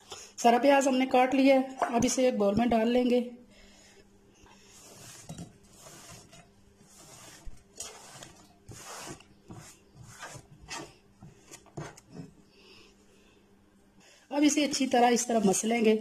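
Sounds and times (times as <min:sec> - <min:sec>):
onion scraping on cutting board: 0:04.6 - 0:12.4.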